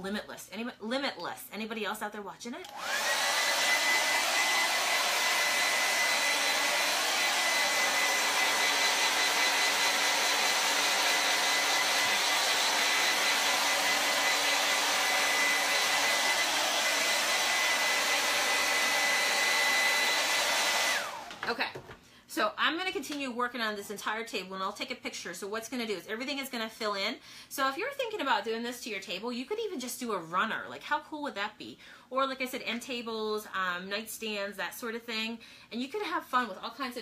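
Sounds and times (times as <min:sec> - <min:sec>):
hair dryer blowing: 0:02.6 - 0:21.6.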